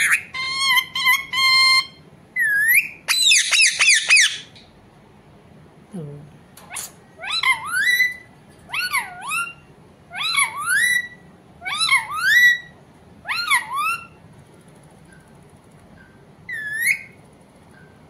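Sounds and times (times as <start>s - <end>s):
parakeet warbling calls: 0.0s - 4.6s, 6.7s - 14.2s, 16.0s - 17.2s.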